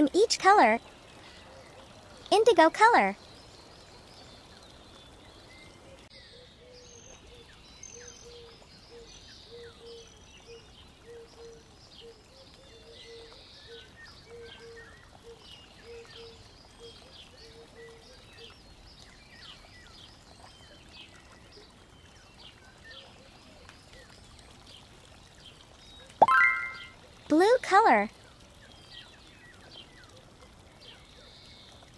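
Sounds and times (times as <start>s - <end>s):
high bird chirps: 26.2s - 27.0s.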